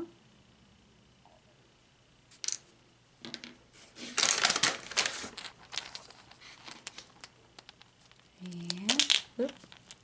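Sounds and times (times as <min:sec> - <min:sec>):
paper bag rustling: 0:03.8 - 0:07.3.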